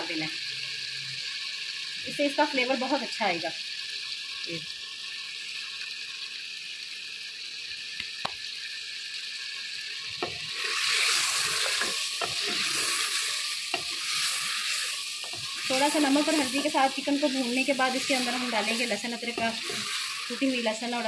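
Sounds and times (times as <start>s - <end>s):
chicken sizzling in a pot: 0.0s - 21.0s
wooden spoon scraping a pot: 10.2s - 20.5s.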